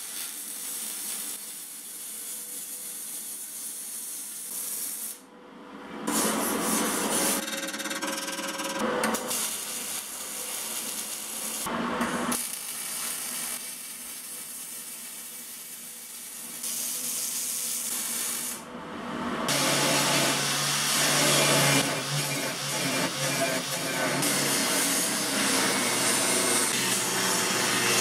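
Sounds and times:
welding crackling hiss: 0:00.0 - 0:05.3, 0:09.2 - 0:11.7, 0:12.3 - 0:18.6
angle grinder grinding metal: 0:19.5 - 0:28.0.

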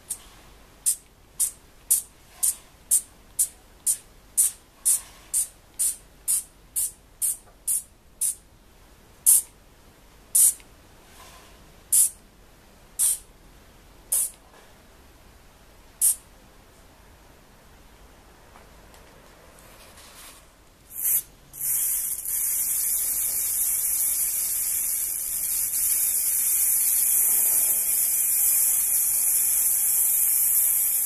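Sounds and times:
spray bottle squirting: 0:00.8 - 0:03.5, 0:04.4 - 0:08.4, 0:10.4 - 0:10.6, 0:11.9 - 0:12.1, 0:13.0 - 0:13.2, 0:14.1 - 0:14.4, 0:16.0 - 0:16.2, 0:20.9 - 0:31.0.

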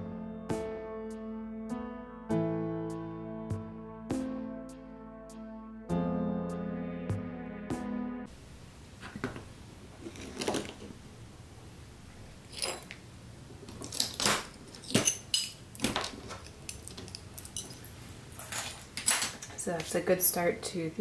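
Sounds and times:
glass pieces clinking: 0:12.5 - 0:13.0, 0:13.8 - 0:19.4.

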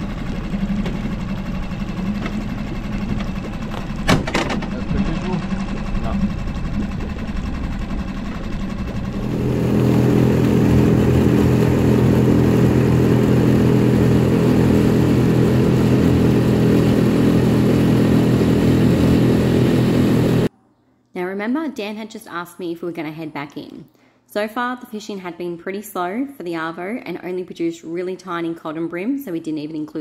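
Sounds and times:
outboard motor running: 0:00.0 - 0:20.5.

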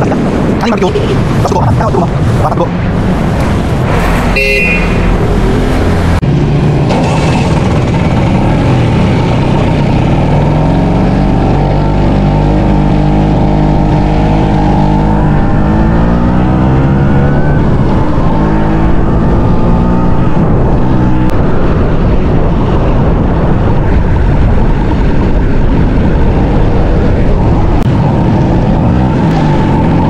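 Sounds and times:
wind and road noise: 0:00.0 - 0:30.0.

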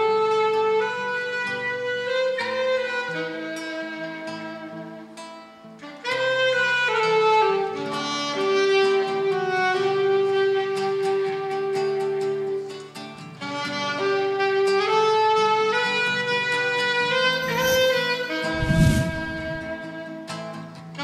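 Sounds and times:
saxophone melody: 0:05.8 - 0:12.6, 0:13.4 - 0:20.1
lower accompaniment: 0:17.2 - 0:19.8.

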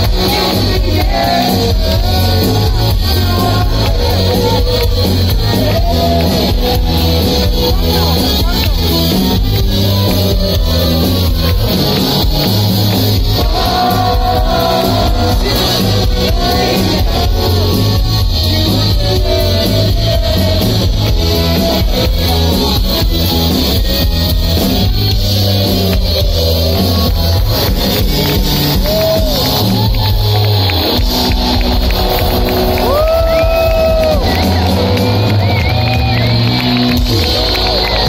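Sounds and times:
man singing lead vocal: 0:00.0 - 0:06.2, 0:13.2 - 0:22.4
live rock band playing: 0:00.0 - 0:38.0.

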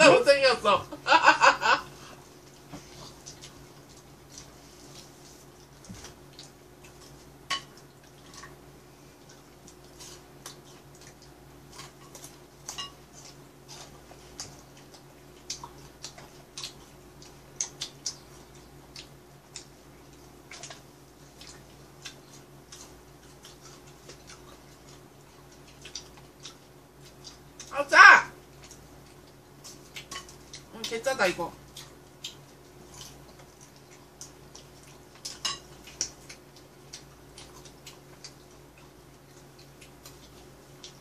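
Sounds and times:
low steady hum: 0:00.0 - 0:41.0
crunchy chewing: 0:02.1 - 0:27.7, 0:28.4 - 0:31.0, 0:31.6 - 0:41.0.

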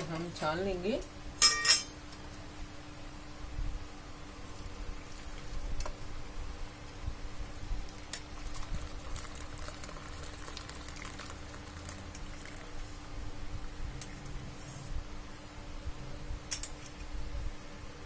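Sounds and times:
water pouring through strainer: 0:08.4 - 0:12.8.

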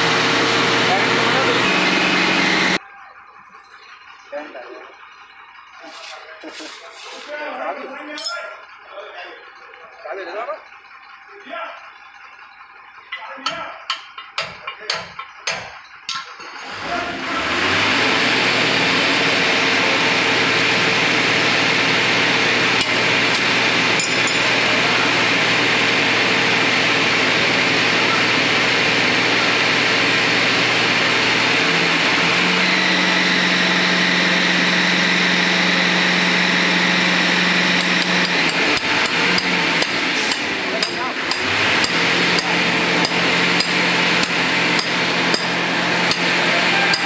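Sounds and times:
machine humming loudly: 0:00.0 - 0:02.8, 0:16.6 - 0:47.0
hammer tapping steel bar: 0:13.4 - 0:16.3.

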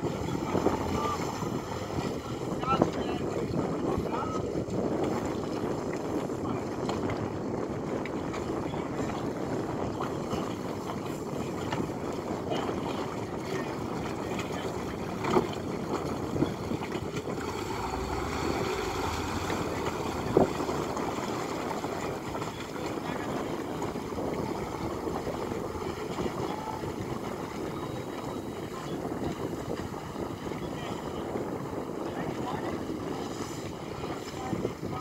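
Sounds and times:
steady background rumble: 0:16.3 - 0:27.6.

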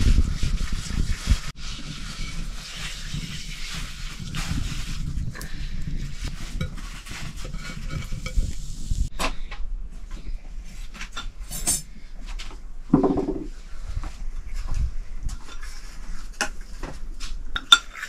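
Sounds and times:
metal pots and utensils clinking: 0:11.1 - 0:12.0, 0:17.6 - 0:18.0.

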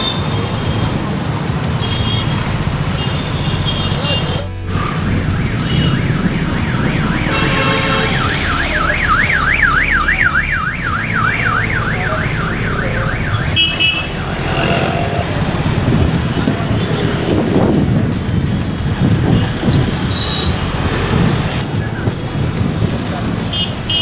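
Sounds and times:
street traffic: 0:00.0 - 0:24.0
electronic siren warbling: 0:04.7 - 0:15.2.

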